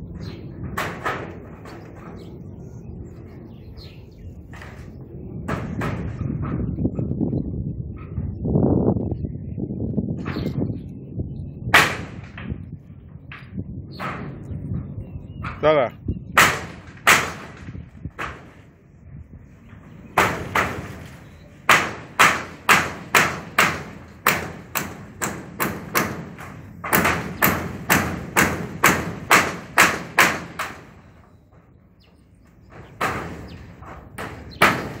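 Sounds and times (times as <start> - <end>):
hammer striking nails into metal: 21.7 - 30.9, 32.7 - 35.0.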